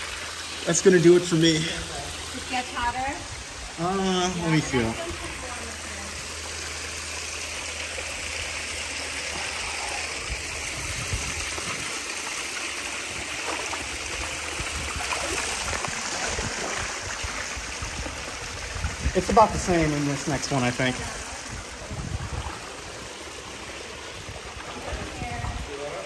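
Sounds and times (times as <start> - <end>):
water splashing into a pool: 0.0 - 26.0.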